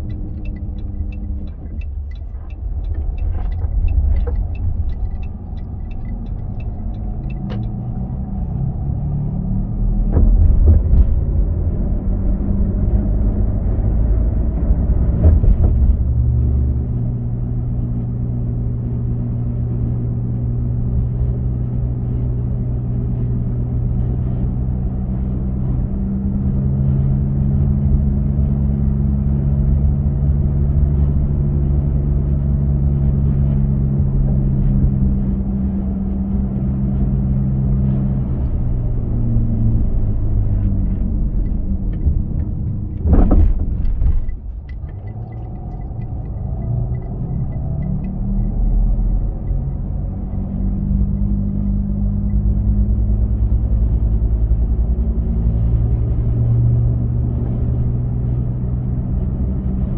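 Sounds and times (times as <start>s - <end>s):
car engine hum: 0.0s - 59.9s
tyre rumble: 42.1s - 46.1s.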